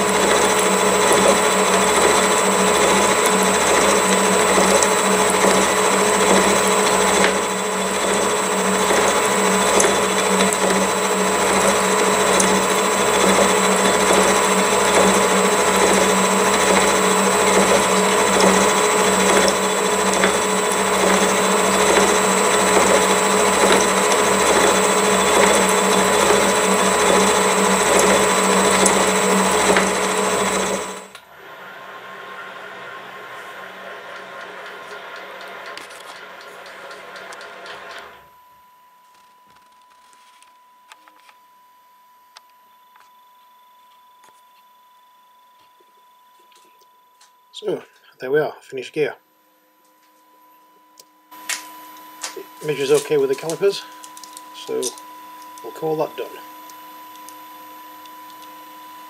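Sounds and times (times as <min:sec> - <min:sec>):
milling machine whirring: 0:00.0 - 0:38.5, 0:51.3 - 0:59.0
quiet machine hum: 0:00.0 - 0:59.0.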